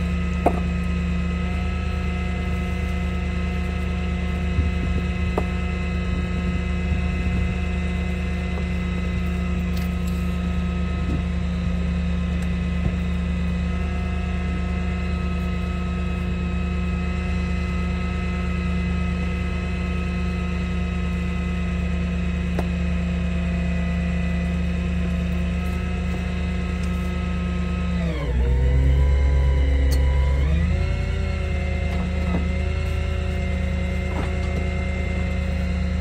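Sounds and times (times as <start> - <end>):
truck engine running: 0.0 - 36.0.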